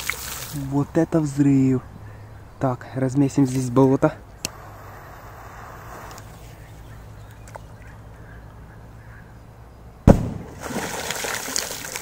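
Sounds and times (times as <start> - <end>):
water splashing back: 0.0 - 0.7, 10.2 - 12.0
firecracker bang: 10.0 - 10.8.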